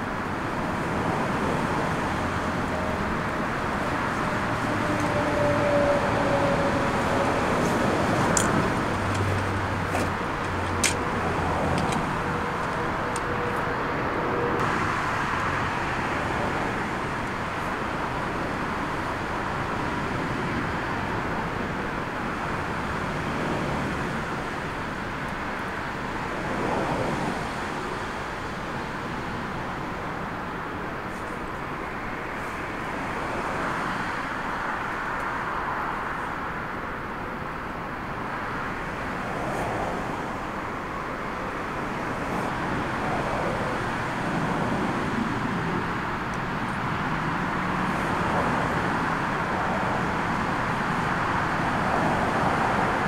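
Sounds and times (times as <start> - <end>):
gusty wind buffeting microphone: 0.0 - 33.8.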